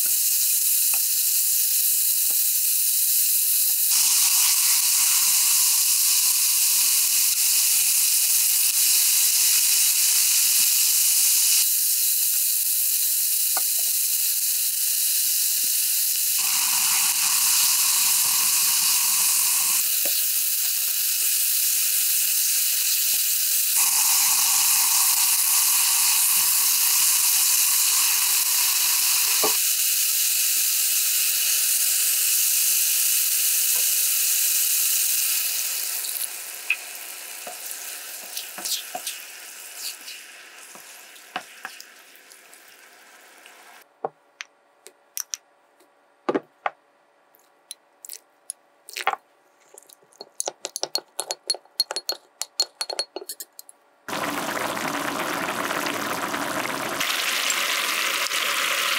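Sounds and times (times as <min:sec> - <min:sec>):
meat sizzling in a frying pan: 0:00.0 - 0:43.8, 0:54.1 - 0:58.9
spoon clinking against glass bowl: 0:50.2 - 0:53.7.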